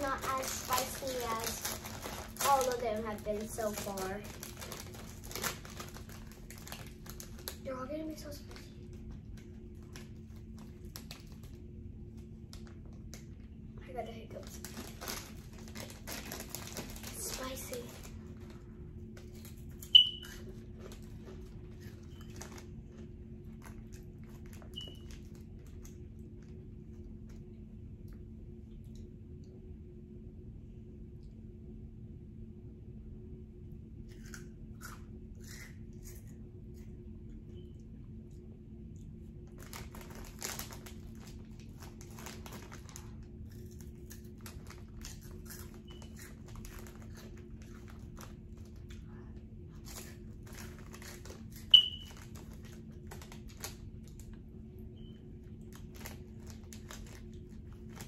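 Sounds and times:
snack bag handling: 0.0 - 13.4, 14.4 - 26.6, 39.4 - 49.0, 49.8 - 54.4, 55.4 - 58.0
steady low hum: 0.0 - 58.0.

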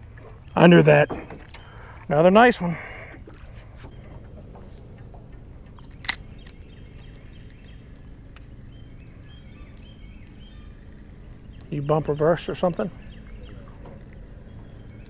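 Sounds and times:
faint bird chirps: 1.3 - 2.0, 3.8 - 15.0
steady low rumble: 1.5 - 15.0
sharp click: 5.8 - 6.6.

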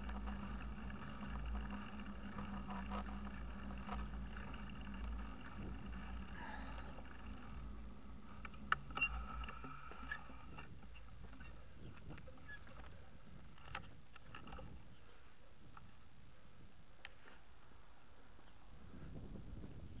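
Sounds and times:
bike tyres rolling on tarmac: 0.0 - 16.0
sharp clicks: 6.8 - 12.9.

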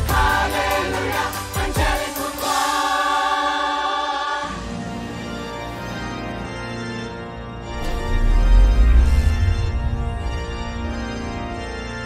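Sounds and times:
chorus singing a chord: 0.0 - 5.6
orchestra: 0.0 - 12.0
sustained organ chord: 3.1 - 12.0.

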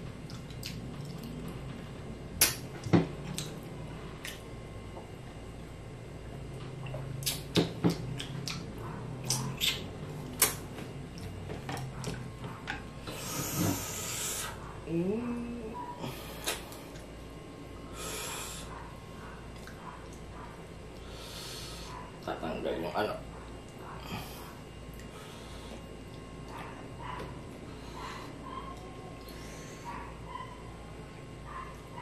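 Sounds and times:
wet chewing and lip-smacking: 0.2 - 1.6, 2.4 - 4.5, 6.8 - 12.3, 19.5 - 21.0
man humming: 14.9 - 16.2.

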